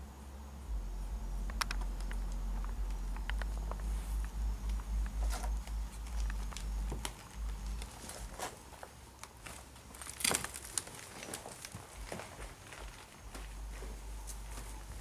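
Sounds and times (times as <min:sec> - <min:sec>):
pulsing low rumble: 0:00.5 - 0:08.4, 0:13.3 - 0:15.0
crinkling crackle: 0:01.2 - 0:15.0
small clicks and crunches: 0:01.4 - 0:15.0.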